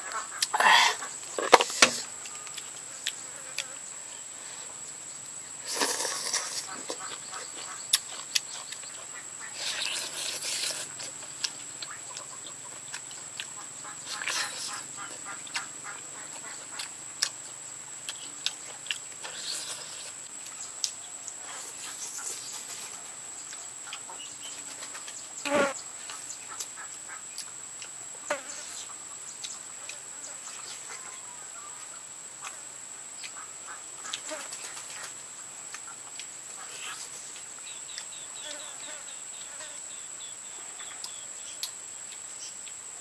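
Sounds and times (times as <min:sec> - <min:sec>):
man chewing and lip smacking: 0:05.7 - 0:15.7, 0:16.4 - 0:21.4, 0:23.5 - 0:24.1, 0:27.3 - 0:28.0, 0:35.7 - 0:36.9.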